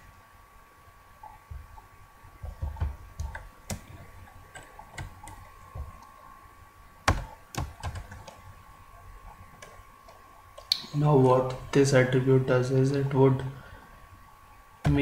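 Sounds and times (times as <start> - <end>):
computer keyboard typing: 2.4 - 6.0, 7.0 - 8.4.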